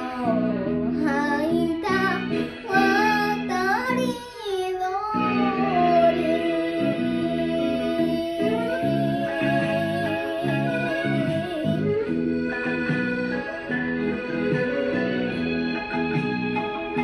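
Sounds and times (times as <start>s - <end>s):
girl singing: 0.0s - 12.2s
karaoke backing track: 0.0s - 17.0s.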